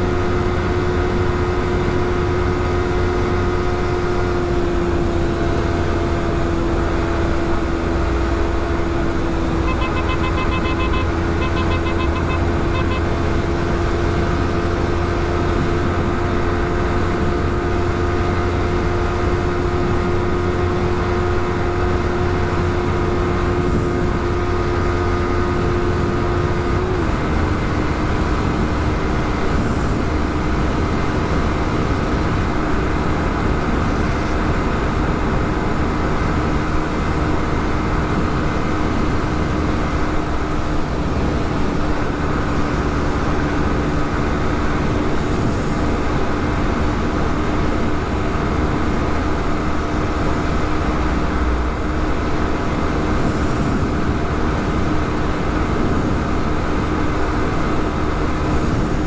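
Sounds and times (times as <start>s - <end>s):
motorcycle engine drone: 0.0s - 59.0s
wind and road noise: 0.0s - 59.0s
quick beeps: 9.6s - 13.1s.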